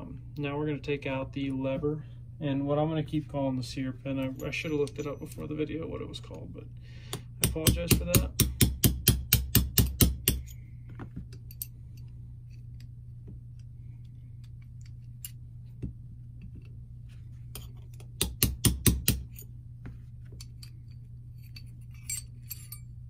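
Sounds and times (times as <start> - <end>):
hammer tapping steel punch: 7.1 - 10.6, 17.6 - 19.4
small metal parts clicking: 20.4 - 22.9.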